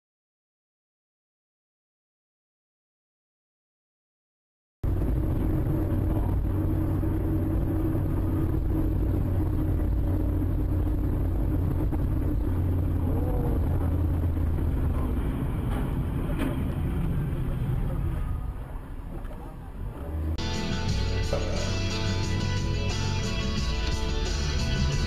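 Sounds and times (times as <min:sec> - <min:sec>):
car engine and road noise: 0:04.8 - 0:25.0.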